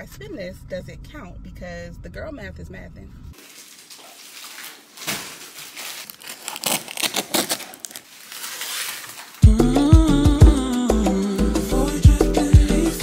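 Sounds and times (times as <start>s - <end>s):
plastic wrap crinkling: 3.4s - 9.4s
cardboard rubbing and scraping: 5.1s - 9.4s
loud music with strong beat: 9.4s - 13.0s.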